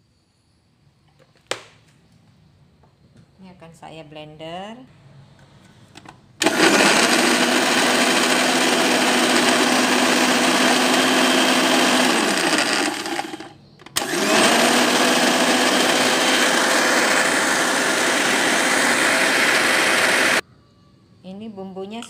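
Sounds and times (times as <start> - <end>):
electric blender running: 6.4 - 20.4.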